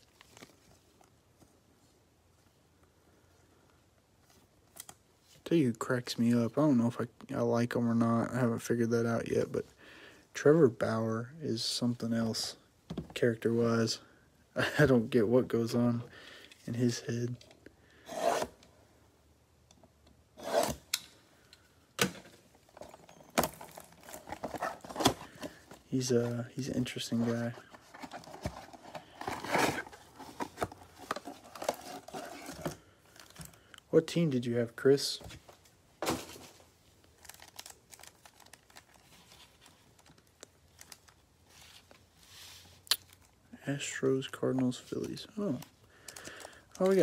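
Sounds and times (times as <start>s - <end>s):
card packs crinkling: 22.6s - 33.7s, 36.1s - 42.0s, 43.0s - 47.0s.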